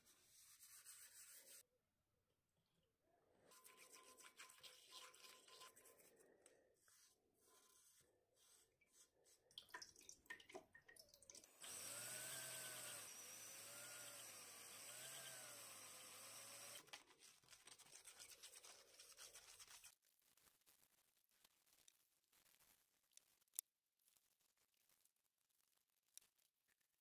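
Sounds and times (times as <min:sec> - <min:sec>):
scratching and rubbing on metal: 0:00.0 - 0:01.6, 0:03.5 - 0:06.2, 0:16.9 - 0:20.5
cordless drill whining: 0:11.5 - 0:16.9.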